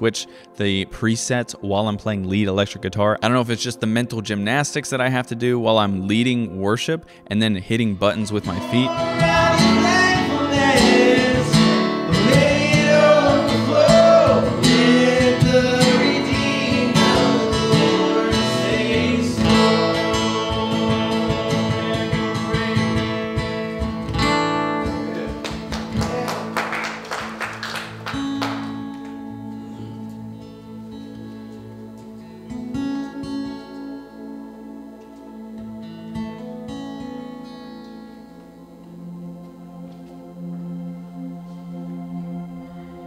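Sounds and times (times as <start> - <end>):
acoustic guitar strumming: 8.0 - 42.4
held ambient synth pad: 8.1 - 43.0
man singing: 8.2 - 23.1.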